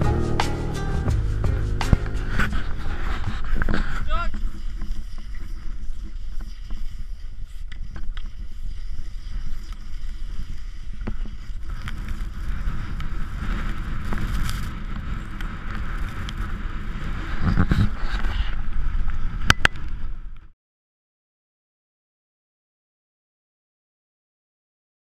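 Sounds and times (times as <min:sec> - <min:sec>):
wind buffeting microphone: 0:01.1 - 0:20.4.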